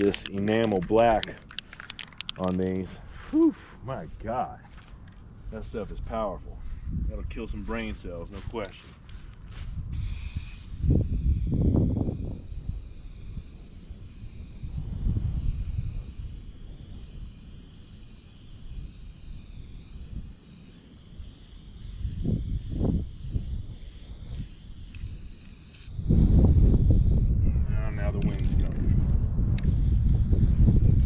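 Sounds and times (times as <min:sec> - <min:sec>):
spray paint can hissing: 0:00.0 - 0:03.0, 0:07.6 - 0:27.3, 0:29.4 - 0:31.0
wind rumbling on microphone: 0:05.2 - 0:20.4, 0:21.7 - 0:31.0.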